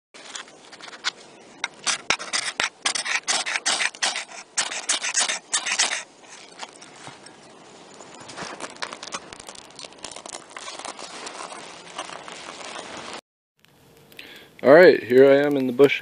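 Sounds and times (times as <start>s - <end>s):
striker rasping on ferro rod: 1.8s - 6.5s.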